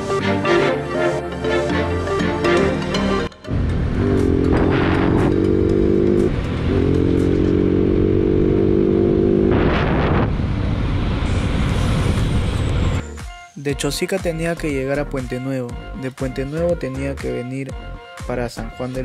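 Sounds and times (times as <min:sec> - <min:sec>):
wind and road noise: 0:03.5 - 0:13.0
motorcycle engine running: 0:03.9 - 0:09.6.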